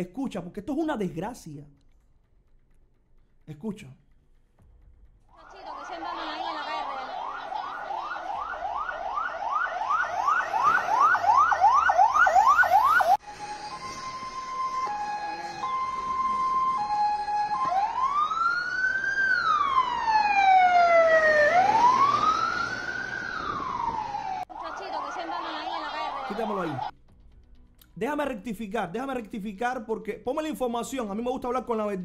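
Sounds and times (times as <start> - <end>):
siren slow wail: 5.3 - 26.9
two-tone siren: 5.3 - 26.9
siren yelp: 5.4 - 26.9.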